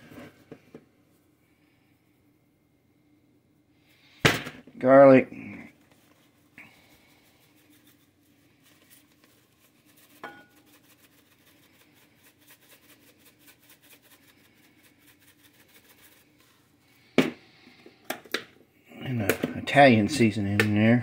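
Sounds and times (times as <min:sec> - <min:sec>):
faint steady hum: 0:00.0 - 0:21.0
seasoning patter from shaker: 0:06.2 - 0:16.6.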